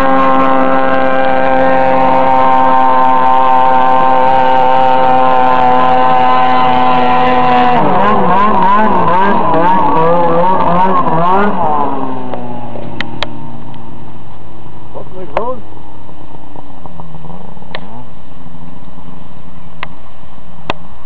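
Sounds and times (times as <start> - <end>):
snowmobile engine at high revs: 0.0 - 13.6.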